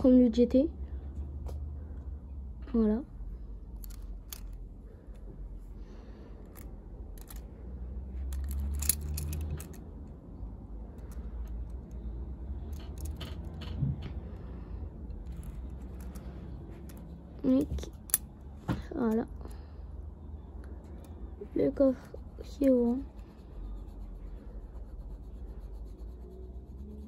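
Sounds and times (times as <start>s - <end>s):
low rumble of handling noise: 0.8s - 27.0s
toy car clicks and rustles: 3.8s - 4.6s, 6.4s - 10.2s, 10.9s - 13.8s, 15.1s - 18.3s.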